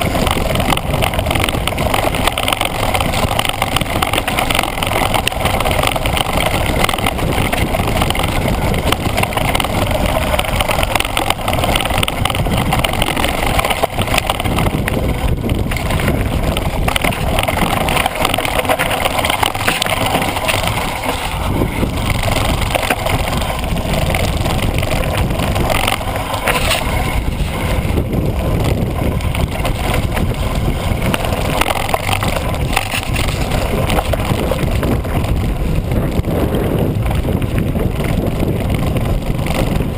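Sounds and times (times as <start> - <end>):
bike rattling over bumps: 0.0 - 39.9
tyres crunching over stones: 0.0 - 39.9
wind on microphone: 0.0 - 39.9.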